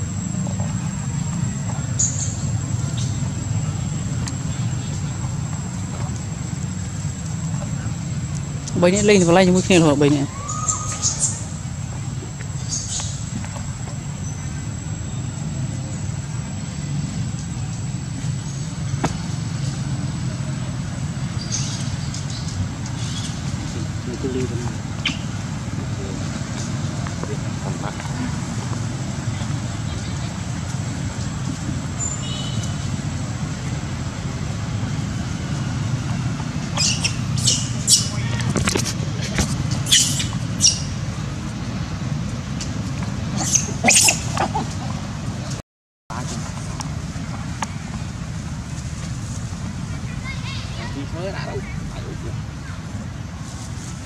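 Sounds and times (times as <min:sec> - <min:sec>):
monkeys squeaking: 0:23.0 - 0:25.4, 0:36.7 - 0:38.4, 0:39.7 - 0:41.0, 0:43.3 - 0:45.1.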